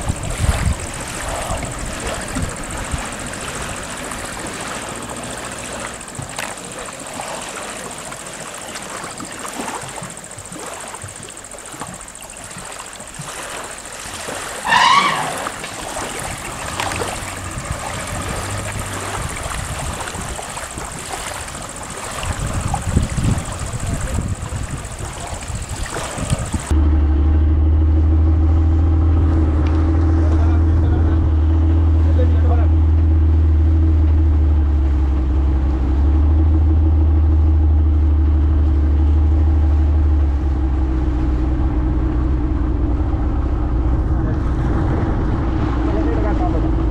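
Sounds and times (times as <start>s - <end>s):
outboard motor running: 0.0s - 46.9s
water: 0.0s - 46.9s
wind: 0.0s - 46.9s
wavering high call: 13.8s - 18.1s.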